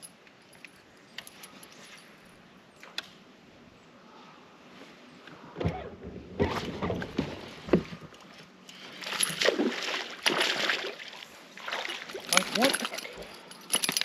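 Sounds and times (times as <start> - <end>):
fish splashing in water: 8.9 - 12.3.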